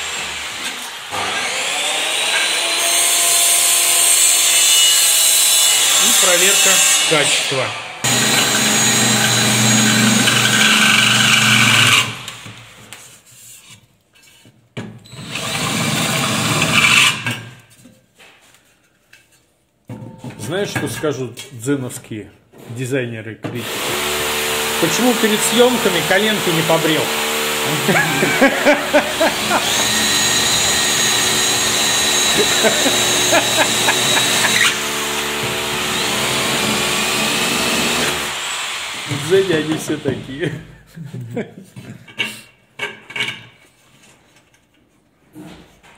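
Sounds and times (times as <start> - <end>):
electric power drill running: 0.0 - 3.8, 8.0 - 12.4, 23.6 - 39.9.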